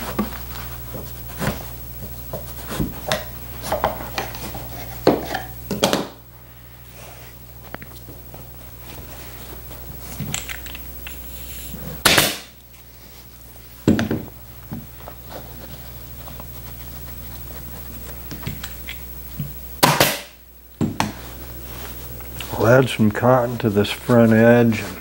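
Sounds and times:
steady low hum: 0:00.0 - 0:25.0
pneumatic staple gun shots: 0:19.8 - 0:20.3.

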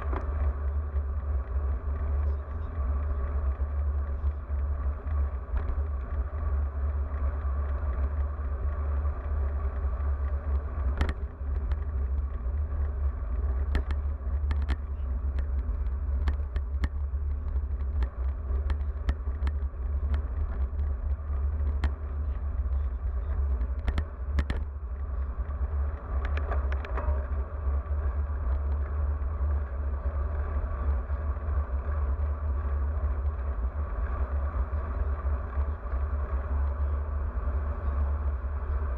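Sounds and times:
tyre and road noise: 0:00.0 - 0:38.9
bike clicks and knocks: 0:02.9 - 0:30.2.

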